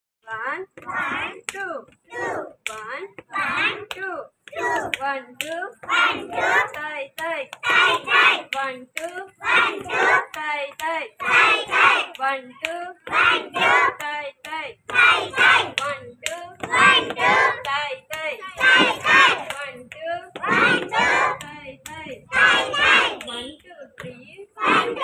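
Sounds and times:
children chanting in unison: 0:00.8 - 0:01.4, 0:02.1 - 0:02.6, 0:03.3 - 0:03.9, 0:04.5 - 0:05.0, 0:05.8 - 0:06.8, 0:07.6 - 0:08.6, 0:09.3 - 0:10.4, 0:11.2 - 0:12.2, 0:13.0 - 0:14.1, 0:14.8 - 0:16.0, 0:16.6 - 0:19.6, 0:20.3 - 0:23.4, 0:24.6 - 0:25.0.

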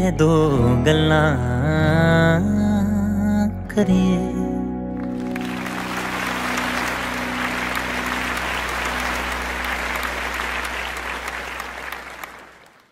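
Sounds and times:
people clapping: 0:05.0 - 0:12.9.

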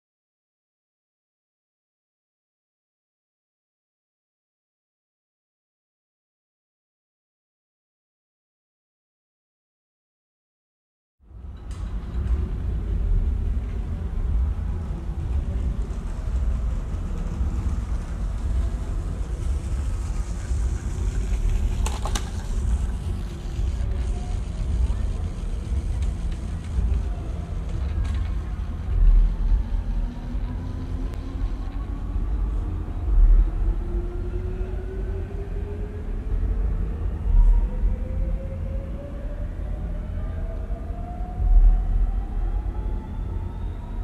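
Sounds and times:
low city rumble: 0:11.2 - 0:44.0
faint voices: 0:12.4 - 0:38.2.

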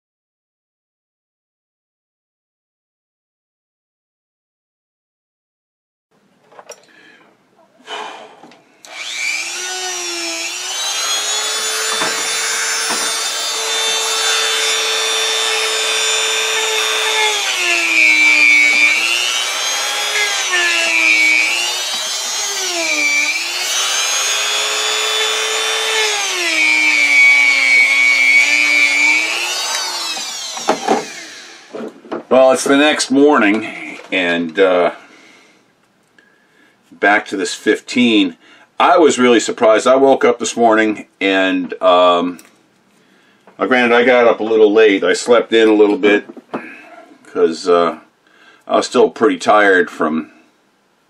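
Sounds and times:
rotary tool whining: 0:08.8 - 0:31.9.

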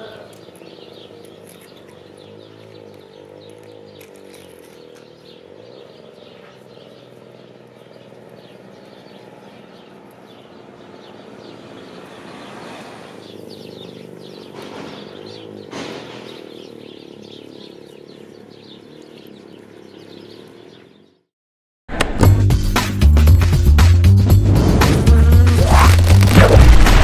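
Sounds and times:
steady engine hum: 0:00.0 - 0:21.0, 0:23.0 - 0:27.0
vehicle passing: 0:00.0 - 0:21.2
small birds chirping: 0:00.0 - 0:21.3.

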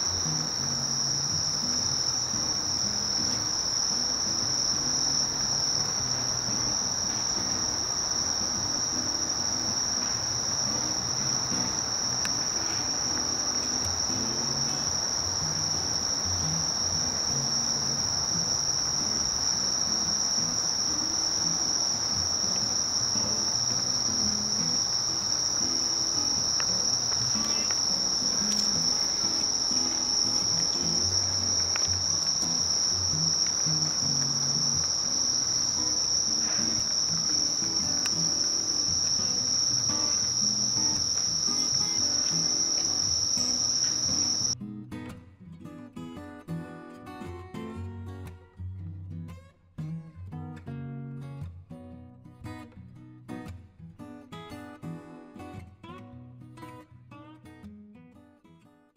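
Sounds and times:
insects trilling: 0:00.0 - 0:44.6.

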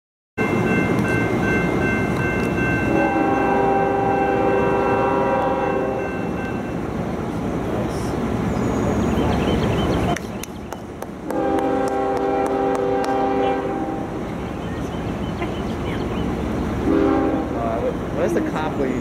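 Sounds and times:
train horn chord: 0:02.8 - 0:06.6, 0:11.3 - 0:14.1, 0:16.8 - 0:17.6.

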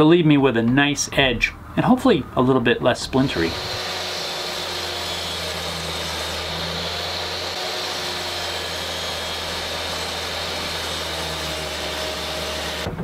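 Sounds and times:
table saw cutting wood: 0:03.3 - 0:13.0.

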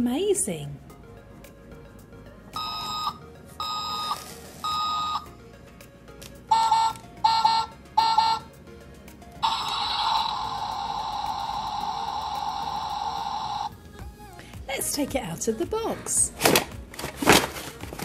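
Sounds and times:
toy truck electronic beeps: 0:02.6 - 0:05.3, 0:06.5 - 0:08.5, 0:09.4 - 0:13.7.

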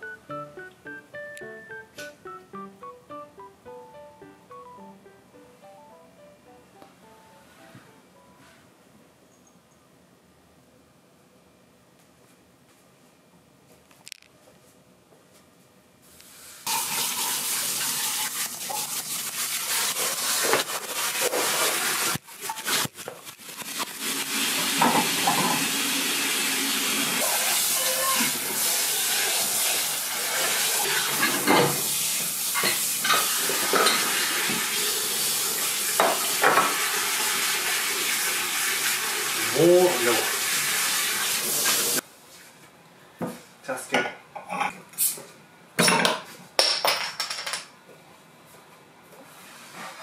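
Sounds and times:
water running from a tap: 0:16.7 - 0:42.0
dishes clinking: 0:32.6 - 0:34.1.

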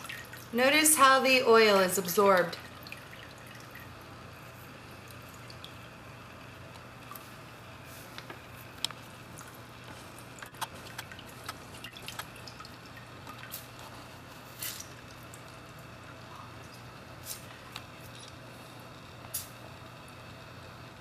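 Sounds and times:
faint low hum: 0:00.0 - 0:21.0
drips into water: 0:05.0 - 0:06.0, 0:10.4 - 0:13.8.

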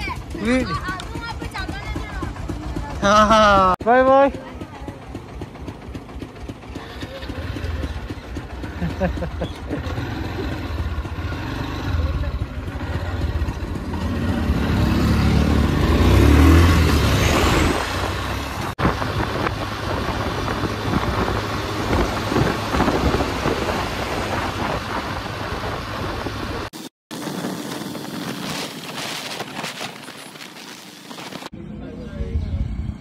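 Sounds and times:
motorcycle engine running: 0:00.0 - 0:31.6
wind buffeting microphone: 0:17.6 - 0:28.8.

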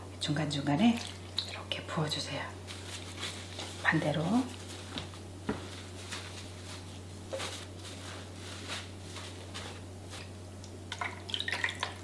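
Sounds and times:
steady low hum: 0:00.0 - 0:12.0
leaves rustling: 0:02.6 - 0:10.4.

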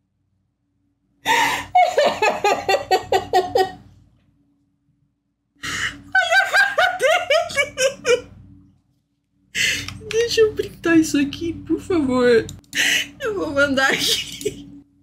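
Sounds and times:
woman gasping: 0:01.3 - 0:01.8
woman laughing hard: 0:01.3 - 0:03.8, 0:05.8 - 0:08.3.

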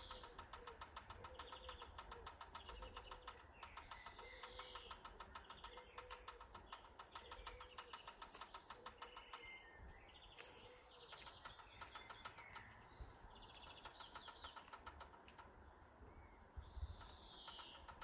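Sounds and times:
low repeated bird call: 0:00.0 - 0:18.0
small birds chirping: 0:00.0 - 0:18.0.

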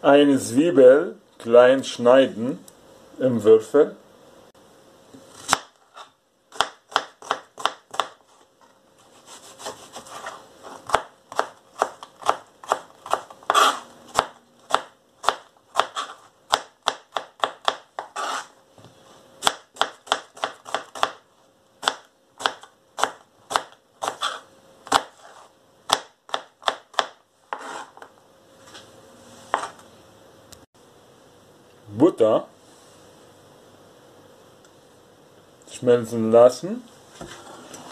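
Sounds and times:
knife chopping on plastic board: 0:06.6 - 0:08.2, 0:10.8 - 0:18.4, 0:19.4 - 0:21.2.

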